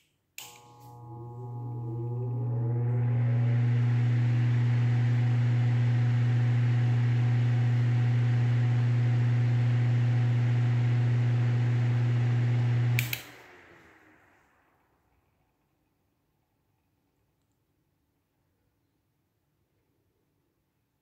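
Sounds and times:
electric fan running: 0.4s - 14.9s
fan switch click: 13.0s - 13.4s.

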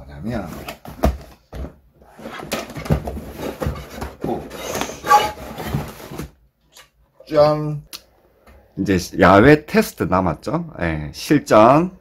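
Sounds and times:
cardboard and plastic wrap rustling: 0.2s - 6.4s.

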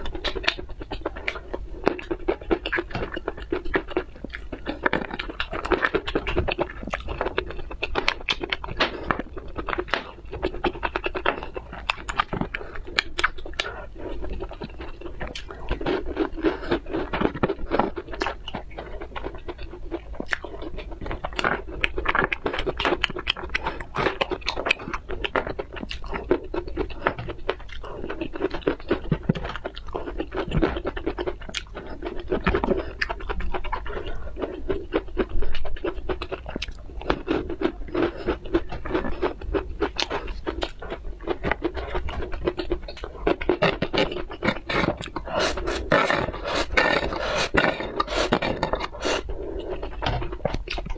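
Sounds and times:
chewing with small crunches: 0.0s - 50.9s
wet mouth clicks: 43.8s - 50.9s.

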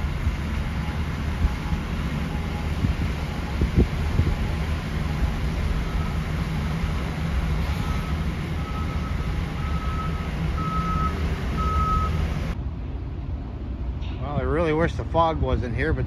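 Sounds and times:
car driving rumble: 0.0s - 16.0s
reversing alarm beeping: 0.7s - 12.3s.

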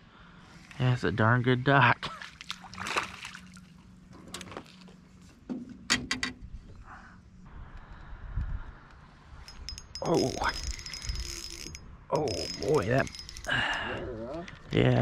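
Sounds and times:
fish splashing in water: 2.3s - 3.7s.

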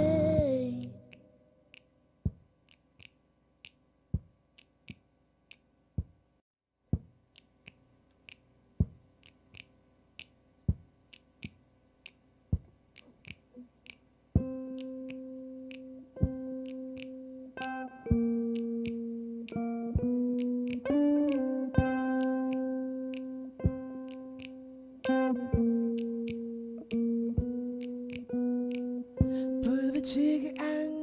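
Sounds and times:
sparse electronic beat: 27.3s - 27.6s.

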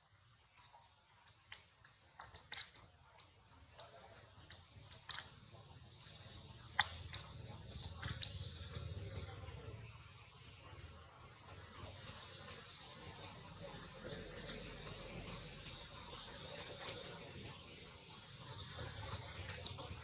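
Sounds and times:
sharp clicks and ticks: 0.5s - 9.2s, 15.6s - 20.0s.

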